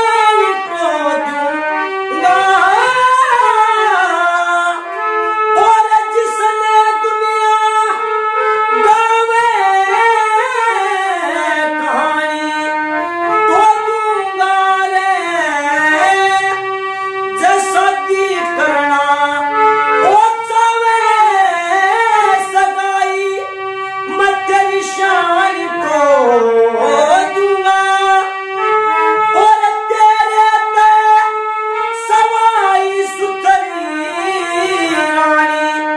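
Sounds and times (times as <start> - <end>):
harmonium: 0.0 - 35.9
man singing: 0.0 - 35.9.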